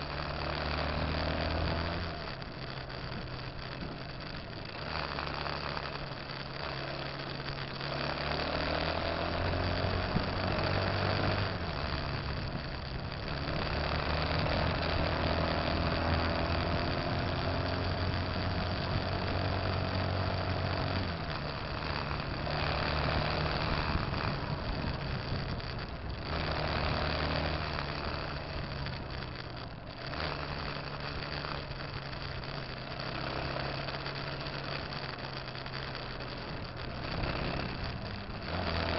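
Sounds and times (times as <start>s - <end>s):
motorcycle engine accelerating: 0.0s - 38.9s.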